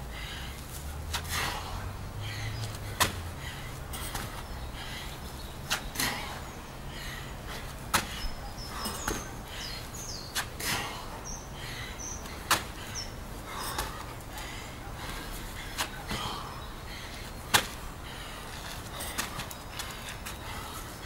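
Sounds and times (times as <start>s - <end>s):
bird chirping: 2.2s - 18.0s
hands and feet hitting gravel: 2.6s - 4.5s, 7.6s - 9.4s, 10.3s - 11.0s, 17.5s - 17.9s, 18.5s - 20.8s.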